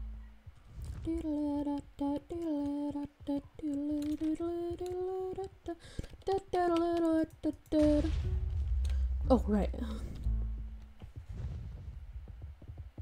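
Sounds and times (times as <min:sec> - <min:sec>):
person humming a tune: 0:01.0 - 0:08.1.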